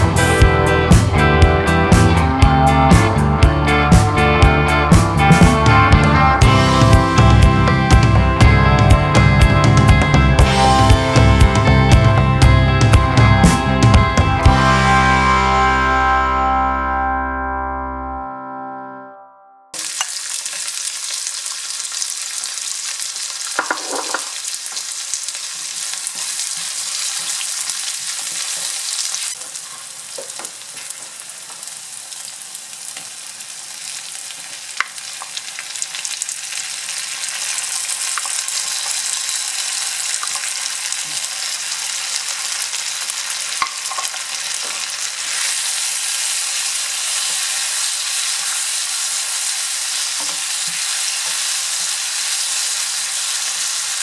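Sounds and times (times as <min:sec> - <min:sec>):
food sizzling in oil: 0:19.8 - 0:54.0.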